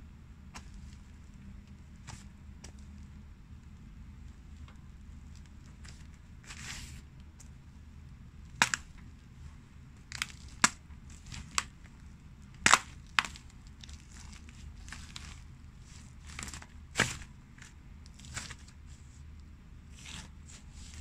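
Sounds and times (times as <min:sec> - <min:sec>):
pumpkin cracking underfoot: 0:08.5 - 0:09.0, 0:10.1 - 0:11.8, 0:12.5 - 0:15.4.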